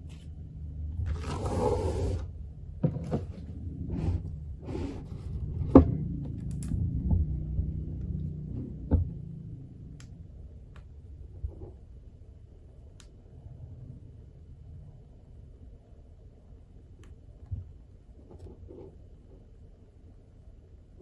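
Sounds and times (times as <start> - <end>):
tablet scraping out of cardboard box: 1.1 - 2.3.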